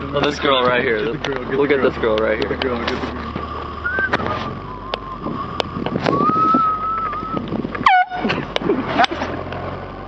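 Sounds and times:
car interior road noise: 0.0s - 10.0s
person whistling: 3.8s - 5.5s, 6.1s - 7.4s.

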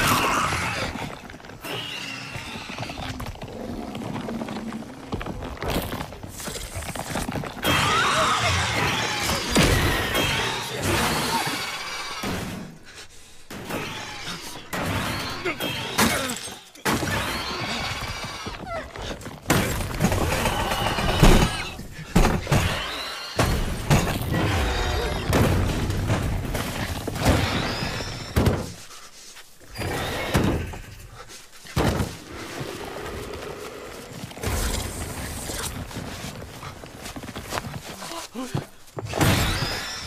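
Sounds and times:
shrieks: 6.3s - 13.0s, 26.8s - 31.3s, 39.1s - 40.0s.

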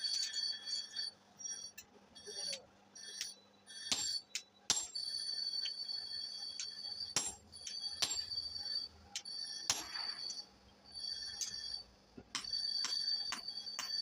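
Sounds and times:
hammer striking steel on anvil: 3.9s - 5.0s, 7.2s - 8.4s, 9.7s - 10.4s.

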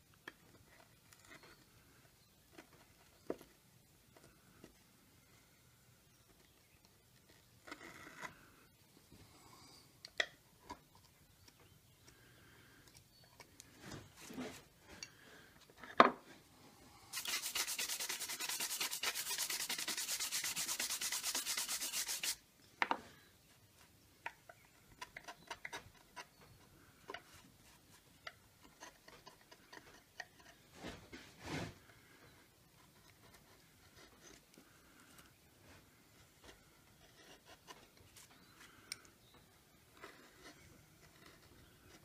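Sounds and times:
brushing wood chips: 17.1s - 22.4s.

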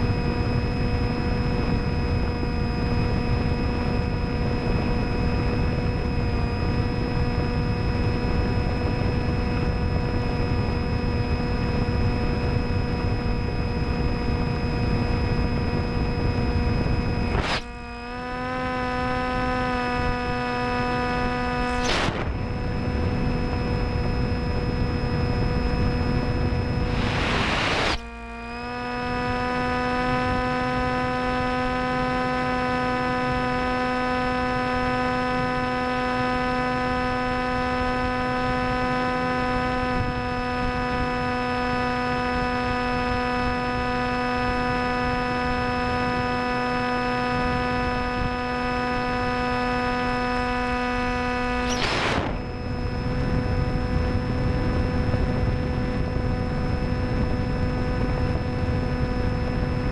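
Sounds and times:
electric propeller motor whine: 0.0s - 59.9s
wind rushing across microphone: 19.4s - 28.0s, 47.2s - 49.4s, 51.7s - 59.9s.

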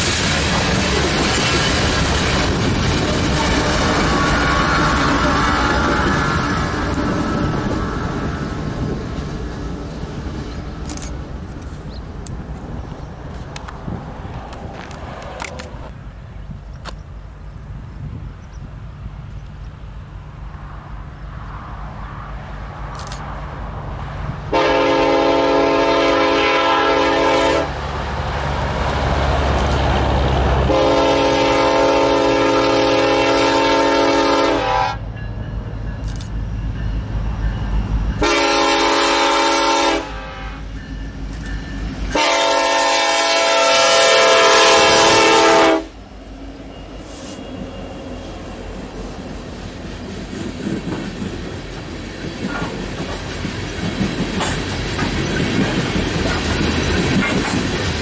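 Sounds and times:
locomotive engine rumble: 0.0s - 58.0s
train passing: 0.0s - 58.0s
train air horn blasts: 3.0s - 7.7s, 24.5s - 27.7s, 30.7s - 35.2s, 38.2s - 40.9s, 42.1s - 46.0s.

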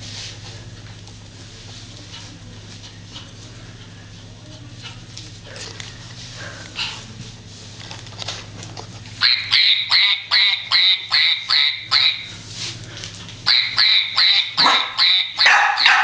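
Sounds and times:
puppy yapping: 13.6s - 16.0s.

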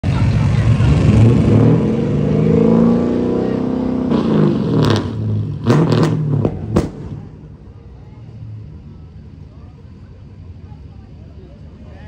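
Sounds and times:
car engine revving: 0.0s - 7.8s
exhaust pops and cracks: 5.6s - 7.3s.

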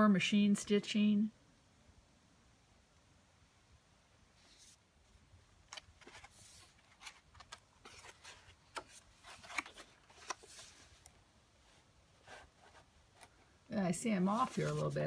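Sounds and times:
paper pages rustling: 5.6s - 13.4s, 14.2s - 15.0s.

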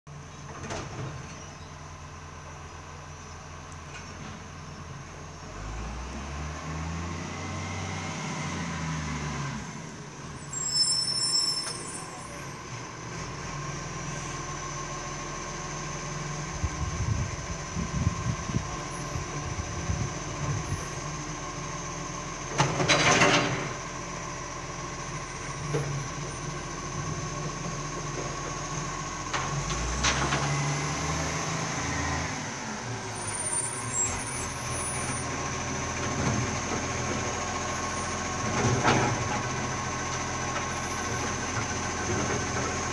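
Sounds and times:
garbage truck diesel engine: 0.1s - 42.9s.

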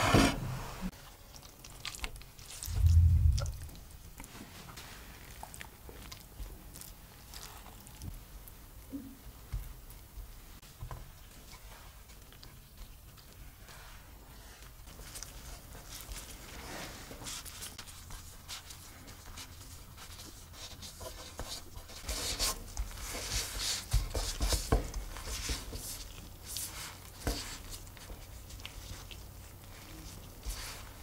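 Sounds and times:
dough rubbing on wood: 13.6s - 31.0s.

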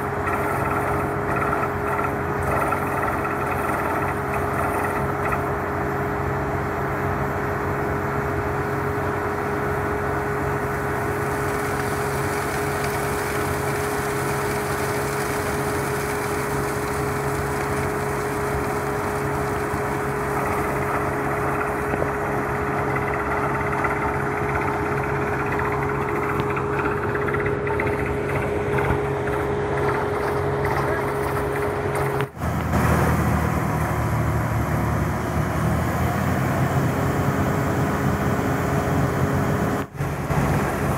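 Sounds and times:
drilling rig engine drone: 0.0s - 40.9s
water spray rushing hiss: 11.0s - 22.1s.

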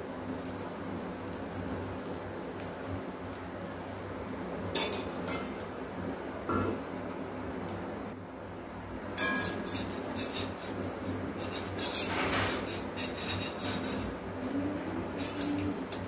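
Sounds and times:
metal lid clink: 9.2s - 9.8s
metal spatula scraping pan: 9.2s - 14.1s.

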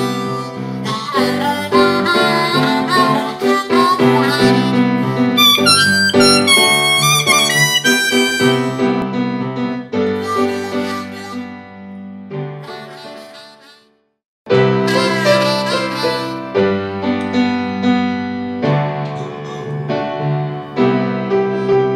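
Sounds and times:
instrumental melody over chords: 0.0s - 12.7s, 14.5s - 21.9s
high bending notes: 1.3s - 9.2s, 10.0s - 11.6s, 14.5s - 21.8s.

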